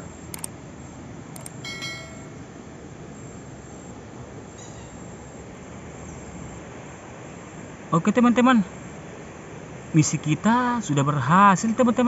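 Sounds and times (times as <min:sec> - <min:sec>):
short bright ringing tone: 0:01.5 - 0:02.5.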